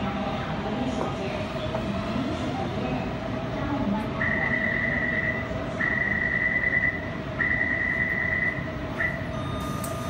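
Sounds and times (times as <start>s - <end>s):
thin steady whine of train: 0.0s - 10.0s
train humming at platform: 0.0s - 10.0s
high warning beeps: 4.2s - 10.0s.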